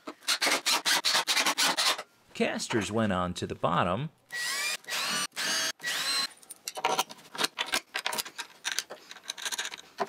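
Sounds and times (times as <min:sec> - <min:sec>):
cordless drill whining: 0:04.3 - 0:06.3
hardware clicking and rattling: 0:06.4 - 0:10.0.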